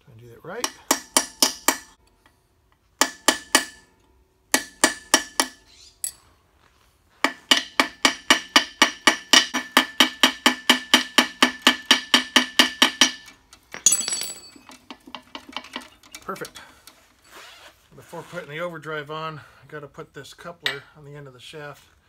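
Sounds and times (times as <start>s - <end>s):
hammer striking steel punch: 0.6s - 2.0s, 3.0s - 3.9s, 4.5s - 5.6s, 7.2s - 13.3s.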